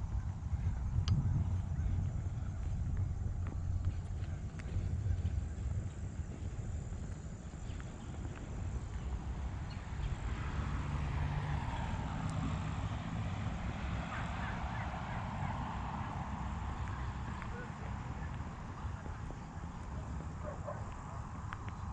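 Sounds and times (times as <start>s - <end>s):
low rumble: 0.0s - 10.2s.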